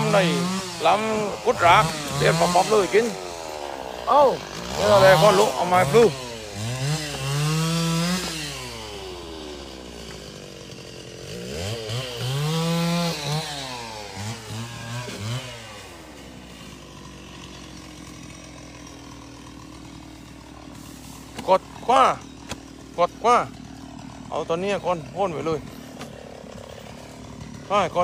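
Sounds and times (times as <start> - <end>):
chainsaw revving: 0.0 - 28.0.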